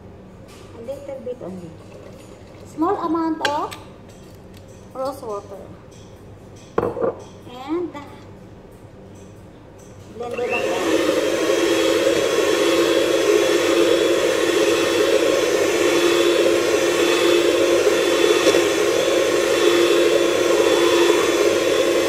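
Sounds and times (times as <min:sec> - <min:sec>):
electric mixer whirring: 0:10.3 - 0:22.0.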